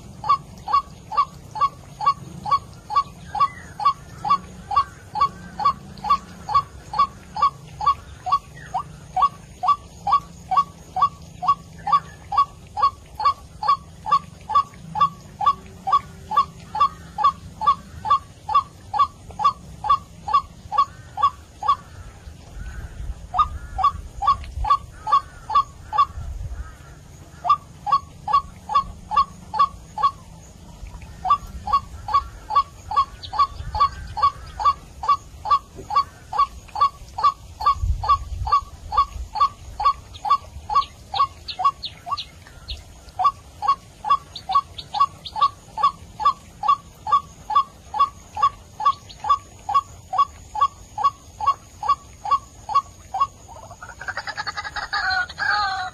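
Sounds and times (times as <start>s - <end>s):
waterhen calling: 0.0s - 55.9s.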